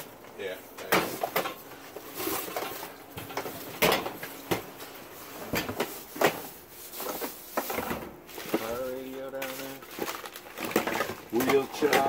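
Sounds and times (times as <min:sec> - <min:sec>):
rummaging through boxes: 0:00.8 - 0:12.0
objects knocking together: 0:09.4 - 0:12.0.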